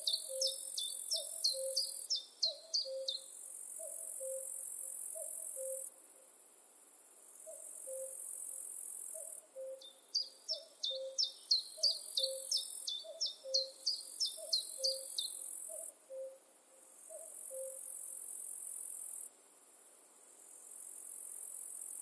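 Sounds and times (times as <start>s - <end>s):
cuckoo calling: 0.0s - 3.2s, 3.8s - 4.5s, 5.2s - 5.9s, 7.5s - 8.2s, 9.2s - 9.9s, 10.5s - 16.4s, 17.1s - 17.8s
songbird singing: 0.0s - 6.3s, 7.4s - 8.2s, 9.1s - 17.9s.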